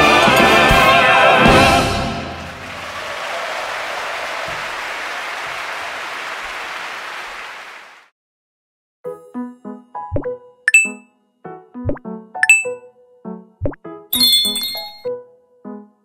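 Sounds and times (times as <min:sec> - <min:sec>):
audience applauding: 0:02.2 - 0:08.1
short electronic chime: 0:14.2 - 0:15.1.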